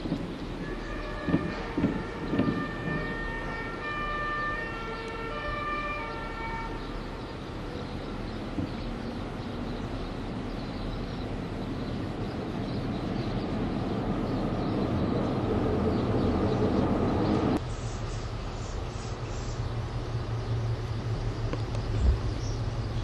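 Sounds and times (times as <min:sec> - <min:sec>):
distant two-tone siren: 0:00.6 - 0:07.2.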